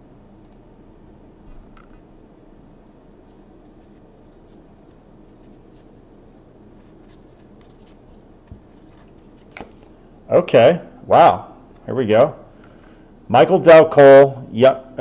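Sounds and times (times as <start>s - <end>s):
trading cards flipped by hand: 6.8s - 9.9s.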